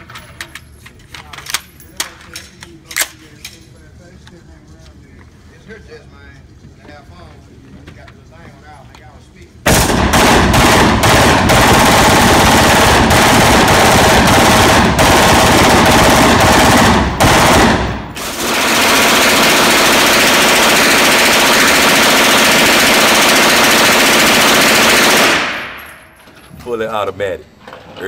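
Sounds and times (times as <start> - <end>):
automatic rifle firing bursts: 9.7 - 25.8.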